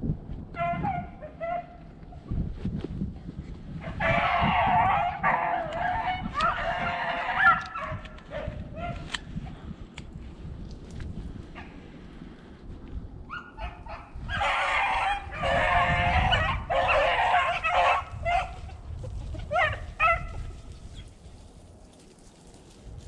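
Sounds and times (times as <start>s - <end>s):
wind rumble on microphone: 0.0s - 23.0s
dogs baying: 3.9s - 9.0s, 13.3s - 18.8s, 19.4s - 20.4s.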